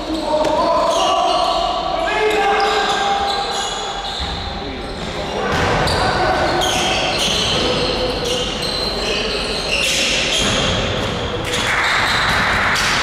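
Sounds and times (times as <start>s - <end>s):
sneakers squeaking on wooden floor: 0.0s - 12.6s
basketball bouncing: 10.3s - 13.0s.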